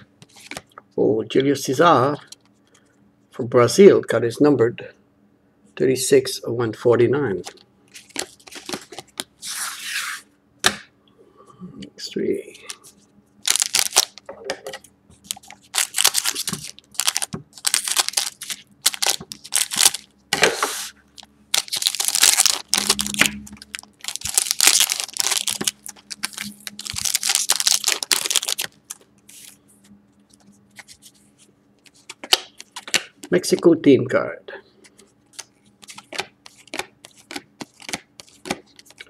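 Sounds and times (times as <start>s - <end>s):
foil packs tearing and crinkling: 13.5s - 14.2s, 15.3s - 20.1s, 21.6s - 29.0s.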